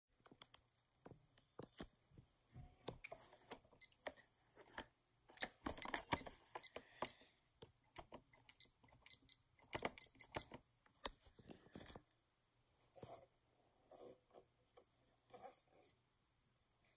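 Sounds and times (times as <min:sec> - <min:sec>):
short high electronic beeps: 0:08.6 - 0:10.5.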